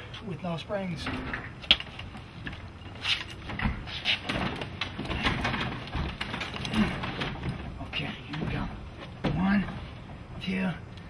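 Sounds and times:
garage door hardware knocking and scraping: 1.0 - 2.2, 3.3 - 10.2.

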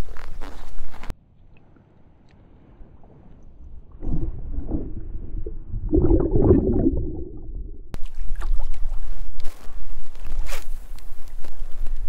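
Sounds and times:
muffled underwater gurgling: 4.0 - 8.0.

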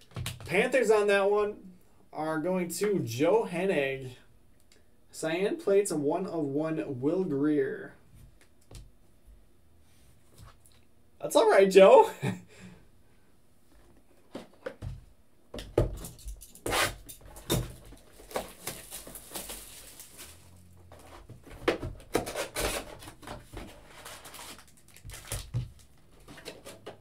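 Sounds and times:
foil packs crinkling: 17.8 - 20.6, 22.2 - 26.6.

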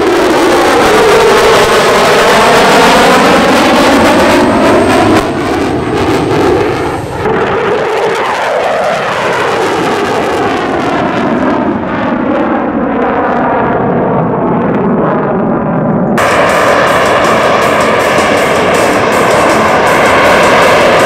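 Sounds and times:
fighter jet engine roar: 0.0 - 21.0.

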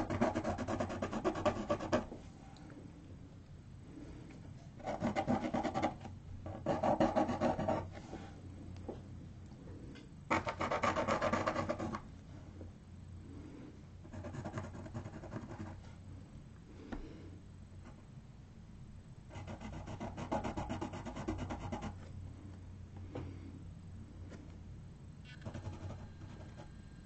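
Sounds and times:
pencil scratching on paper: 0.0 - 2.2, 4.8 - 8.3, 10.3 - 12.0, 14.1 - 15.9, 19.3 - 22.1, 25.4 - 26.7.

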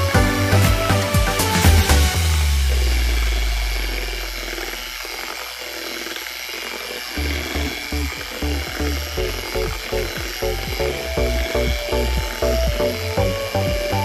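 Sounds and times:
background music with bass beat: 0.0 - 3.8, 7.2 - 14.0
electric hand mixer running: 0.0 - 14.0
beaters whisking batter in bowl: 2.9 - 14.0.

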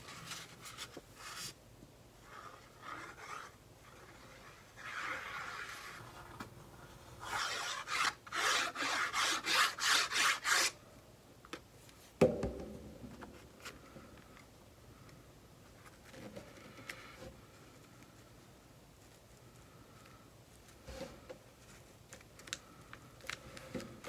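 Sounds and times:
fingers rubbing paper: 2.2 - 6.0, 7.2 - 10.7.

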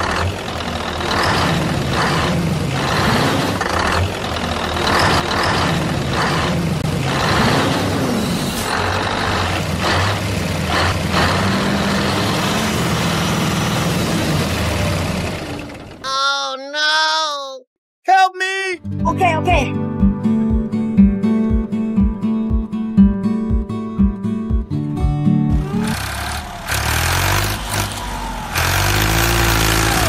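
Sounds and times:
heavy truck engine running: 0.0 - 16.0, 25.5 - 30.0.

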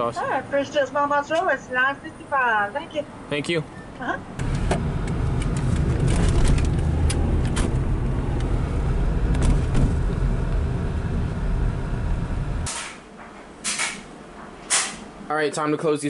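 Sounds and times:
car engine and tyres rumbling: 3.2 - 12.7.

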